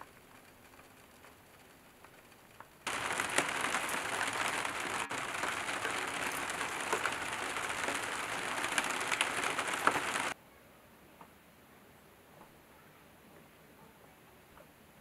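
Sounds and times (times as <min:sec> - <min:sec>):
sharp water drips: 0:00.0 - 0:10.4
steady rain falling: 0:00.0 - 0:10.4.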